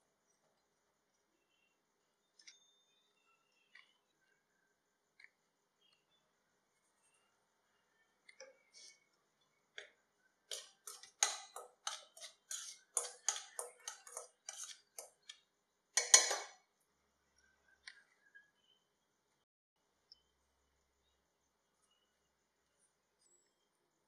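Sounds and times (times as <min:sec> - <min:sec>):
spoon scraping steel bowl: 0:10.5 - 0:16.6.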